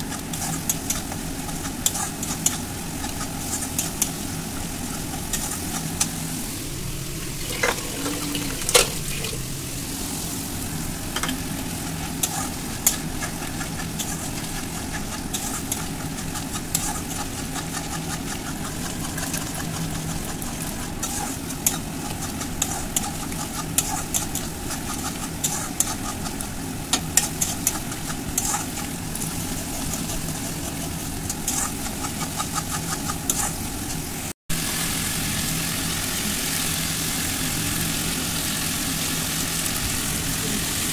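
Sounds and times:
metal spatula scraping a pan: 0:00.0 - 0:06.2, 0:11.2 - 0:34.0
food sizzling in a pan: 0:00.0 - 0:40.9.

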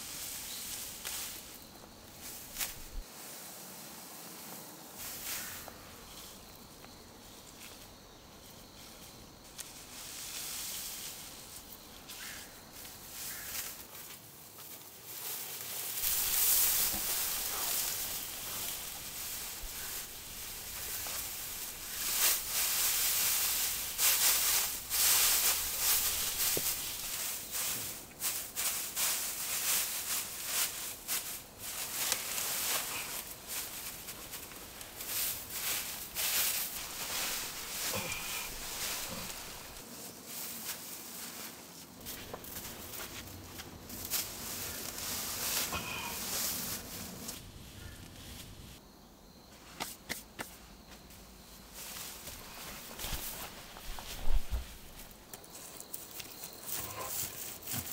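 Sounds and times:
dry straw rustling: 0:00.0 - 0:06.4, 0:07.2 - 0:48.8, 0:51.4 - 0:57.9.

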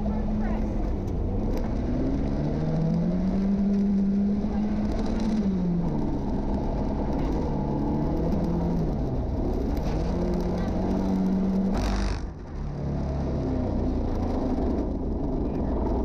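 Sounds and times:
rally car engine pulling: 0:00.0 - 0:16.0
differential gear grinding noises: 0:01.5 - 0:12.6.

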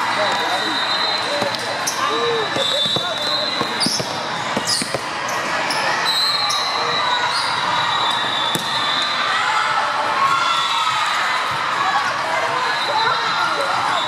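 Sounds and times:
echoing hubbub of voices: 0:00.0 - 0:14.0
shoe squeaks: 0:00.5 - 0:07.6.

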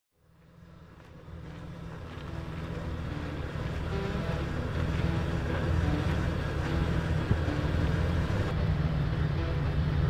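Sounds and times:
low vehicle rumble: 0:00.1 - 0:10.0
wind noise on microphone: 0:02.0 - 0:10.0.

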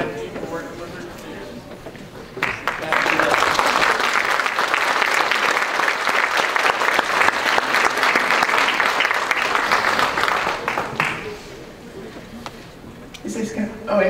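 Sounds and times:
crowd applauding: 0:02.3 - 0:11.7.

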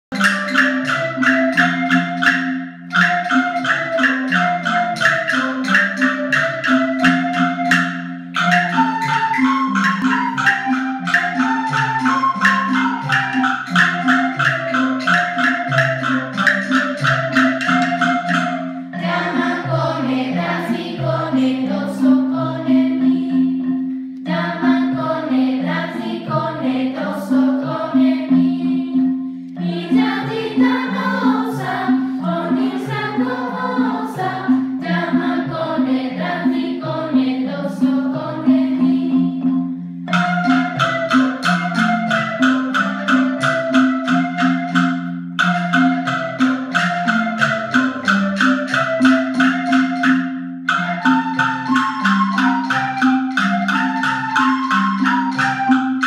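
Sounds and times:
lively instrumental music: 0:00.0 - 0:56.0.

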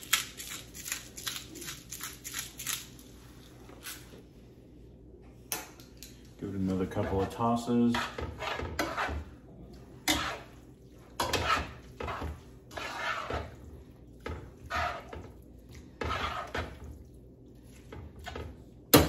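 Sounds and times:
wet noodles squishing: 0:09.2 - 0:19.0.

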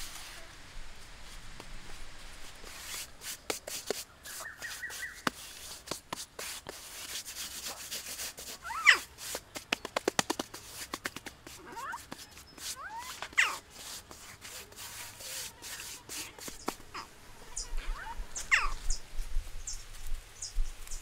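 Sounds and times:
hand scraping wet mud: 0:02.4 - 0:17.1.

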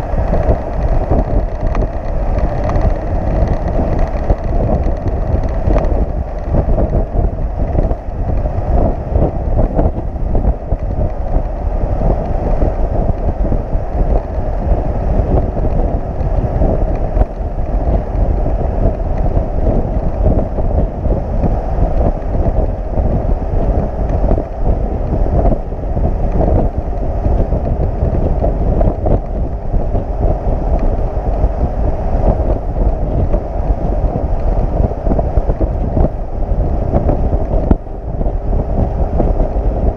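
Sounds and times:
truck road noise: 0:00.0 - 0:20.7
wind buffeting microphone: 0:00.0 - 0:39.9.

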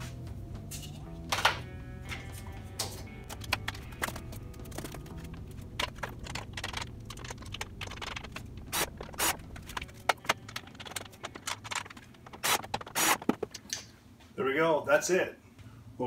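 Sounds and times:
sheet-metal covers clicking and scraping: 0:02.8 - 0:13.8.

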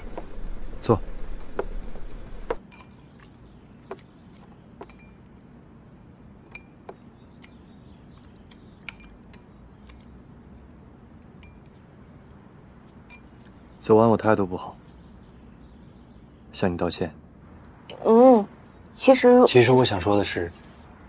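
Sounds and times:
chopsticks clinking on ceramic bowls: 0:02.6 - 0:03.3, 0:04.8 - 0:05.3, 0:06.5 - 0:07.1, 0:08.8 - 0:10.0, 0:11.2 - 0:11.8, 0:12.9 - 0:13.6.

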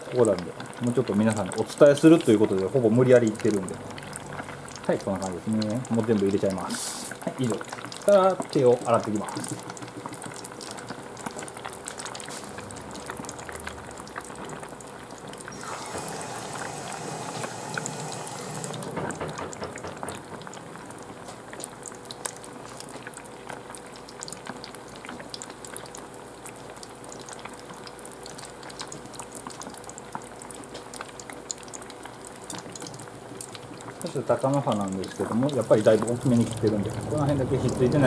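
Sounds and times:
fish deep-frying in oil: 0:00.0 - 0:38.0
loud rushing hiss: 0:15.5 - 0:19.1.

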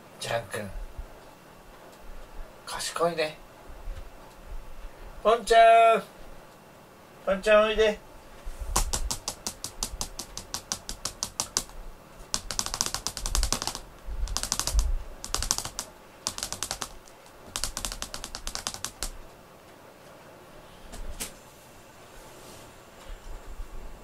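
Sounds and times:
rapid light clicking: 0:08.8 - 0:19.3.

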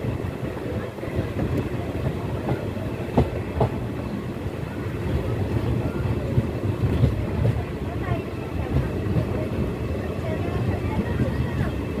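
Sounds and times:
train running gear rumble: 0:00.0 - 0:12.0
train wheels clacking: 0:01.1 - 0:04.2.

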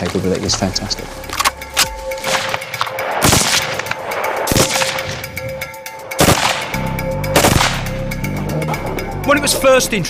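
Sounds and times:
rifle shots with echo: 0:02.2 - 0:05.3, 0:06.1 - 0:07.9.

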